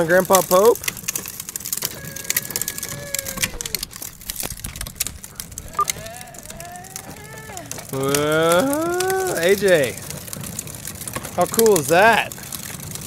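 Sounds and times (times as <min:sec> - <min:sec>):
plastic wheels rolling on concrete: 0:00.0 - 0:13.0
faint voice: 0:05.6 - 0:09.6.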